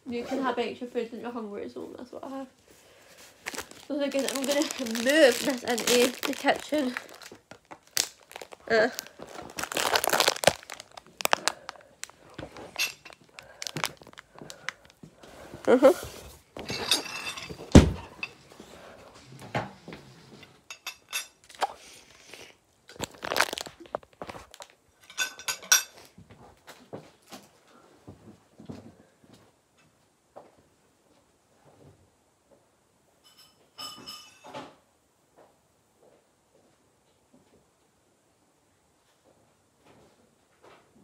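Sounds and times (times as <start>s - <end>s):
plastic bottles crinkling and knocking: 3.0s - 18.4s, 22.9s - 25.9s.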